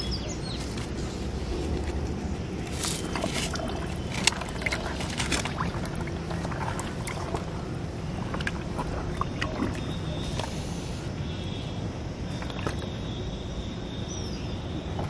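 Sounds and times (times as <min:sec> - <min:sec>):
steady low rumble: 0:00.0 - 0:15.0
clicks and squelches in wet mud: 0:00.5 - 0:10.8, 0:12.2 - 0:13.1.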